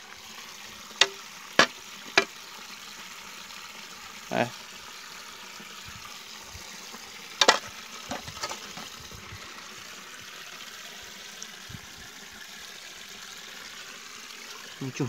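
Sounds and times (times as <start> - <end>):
sharp knocks: 1.0 - 2.3.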